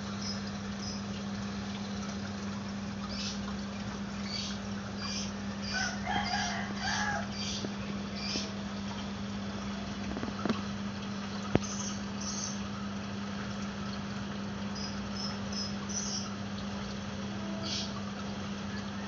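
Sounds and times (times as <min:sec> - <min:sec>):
steady low hum: 0:00.0 - 0:19.0
rooster crowing: 0:05.7 - 0:07.3.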